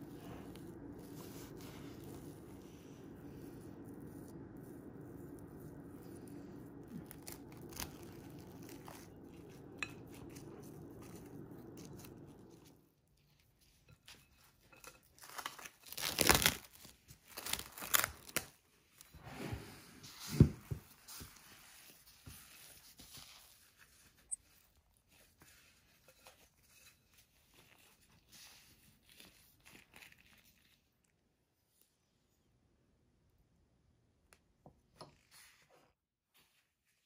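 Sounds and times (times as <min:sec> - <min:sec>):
low hum: 0:00.0 - 0:12.9
plastic glove crinkling: 0:00.0 - 0:19.1, 0:21.0 - 0:31.2.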